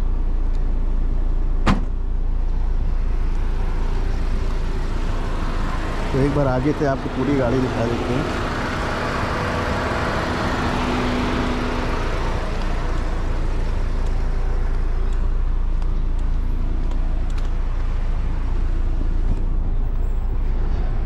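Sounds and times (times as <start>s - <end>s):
low vehicle rumble: 0.0s - 21.0s.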